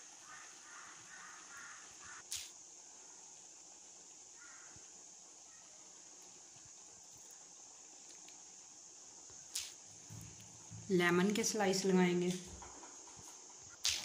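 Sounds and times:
steady hiss: 0:00.0 - 0:14.0
harsh bird calls: 0:00.2 - 0:02.4.

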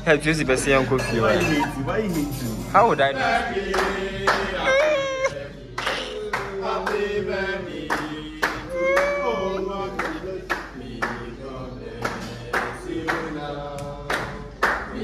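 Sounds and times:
people singing: 0:00.0 - 0:15.0
rhythmic hand-clapping: 0:03.2 - 0:15.0.

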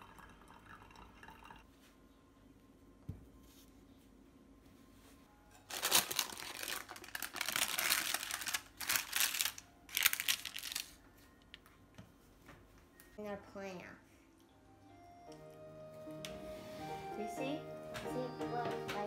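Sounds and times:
parchment paper crinkling: 0:05.6 - 0:11.0.

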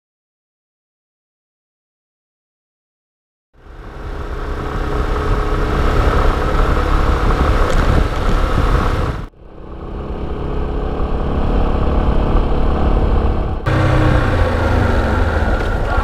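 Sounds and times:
motorcycle engine running: 0:03.6 - 0:16.0.

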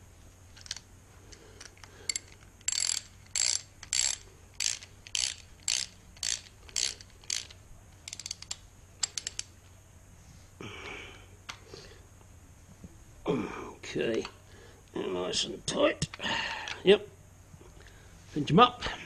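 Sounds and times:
ratchet wrench ratcheting: 0:00.6 - 0:09.5.

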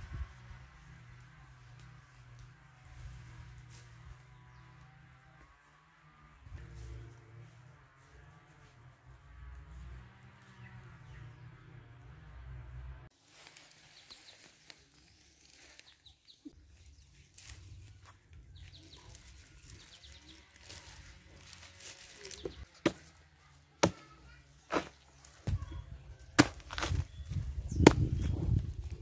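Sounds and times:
machete chopping banana stem: 0:22.8 - 0:23.1, 0:23.8 - 0:24.1, 0:24.7 - 0:25.6, 0:26.4 - 0:27.0, 0:27.8 - 0:28.2.

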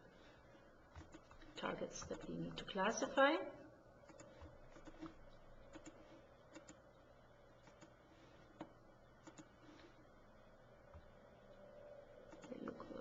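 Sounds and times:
computer mouse clicks: 0:00.9 - 0:02.3, 0:04.0 - 0:06.8, 0:07.6 - 0:09.6, 0:12.3 - 0:12.7.

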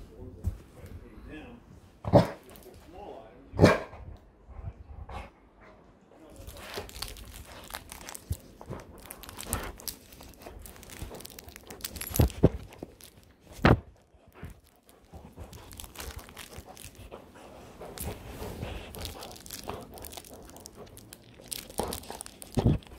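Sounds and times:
puppy chewing plush toy: 0:06.3 - 0:22.9.

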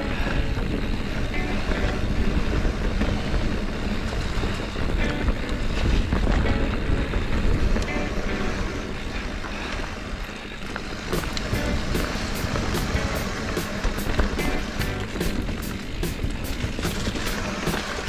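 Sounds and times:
tyres rumbling on dirt: 0:00.0 - 0:18.0
wind on camera microphone: 0:00.0 - 0:18.0
bike rattles and knocks: 0:09.3 - 0:18.0.

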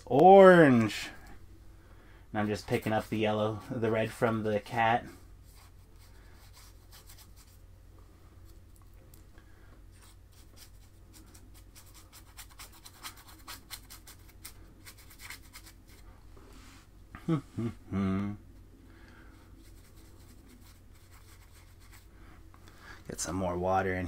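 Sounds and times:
paintbrush scratching on canvas: 0:02.4 - 0:03.7, 0:05.4 - 0:07.6, 0:09.9 - 0:16.0, 0:19.5 - 0:22.1.

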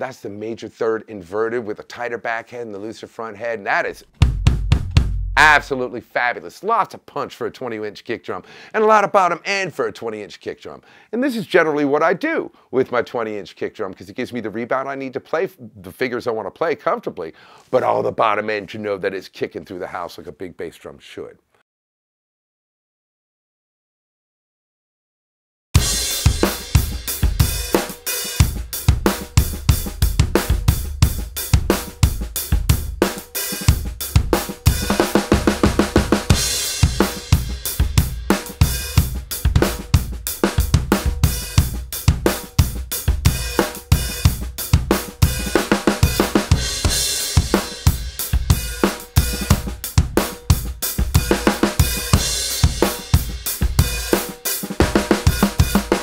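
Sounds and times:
drum kit groove: 0:03.7 - 0:06.0, 0:25.8 - 0:56.0
bass drum kicks: 0:04.1 - 0:05.8, 0:25.8 - 0:27.8, 0:28.4 - 0:33.0, 0:33.7 - 0:54.1.

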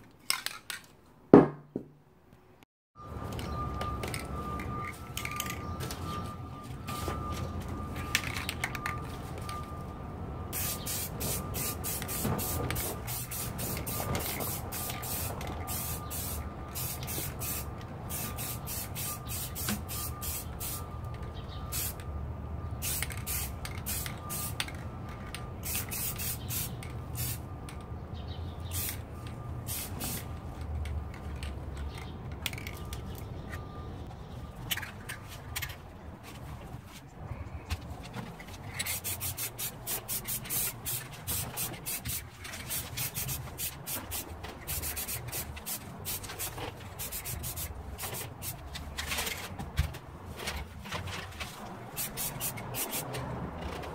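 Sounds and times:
aerosol spray can hissing: 0:38.9 - 0:48.6, 0:52.0 - 0:53.0.

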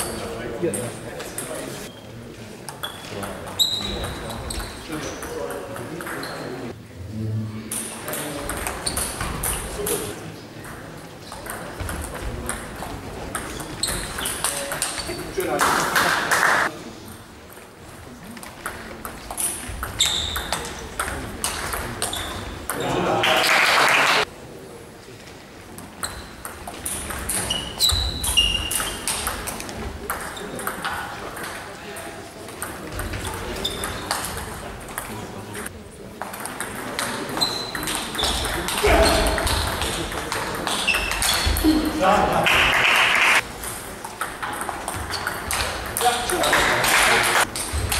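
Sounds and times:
table tennis ball hits: 0:43.0 - 0:47.9.

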